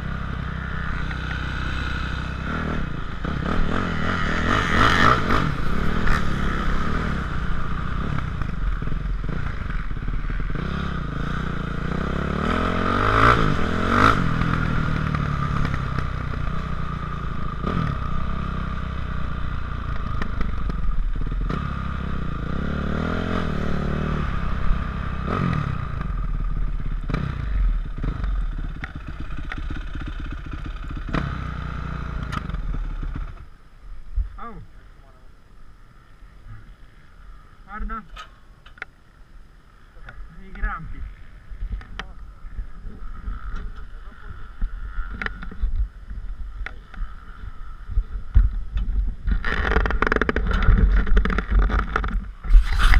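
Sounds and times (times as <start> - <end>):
motorcycle engine idling: 0.0 - 13.2, 24.3 - 52.4.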